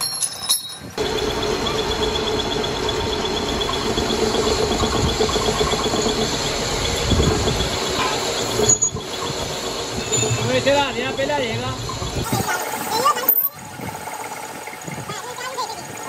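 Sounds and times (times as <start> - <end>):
metal lathe rumbling: 0.0 - 16.0.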